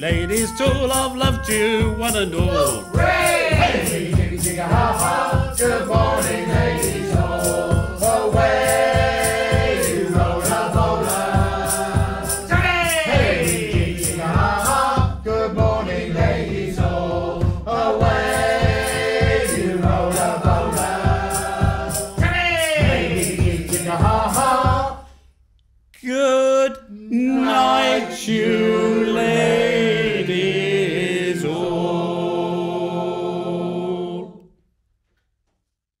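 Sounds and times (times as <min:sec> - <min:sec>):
flute: 0:00.0 - 0:04.1
steady beat: 0:00.0 - 0:25.0
group of voices singing: 0:00.0 - 0:25.1, 0:27.0 - 0:34.5.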